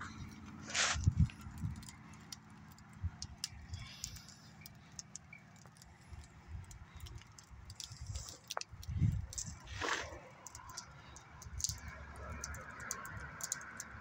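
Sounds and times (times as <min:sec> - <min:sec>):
camera handling rumble and bumps: 0:00.2 - 0:04.3, 0:05.0 - 0:10.9
faint ticks: 0:01.1 - 0:09.7, 0:10.4 - 0:14.0.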